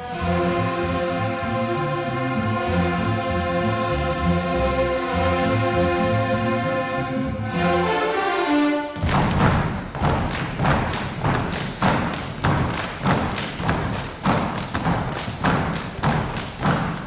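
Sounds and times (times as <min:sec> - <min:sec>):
violins beating percussive thumps: 0:07.0 - 0:17.0.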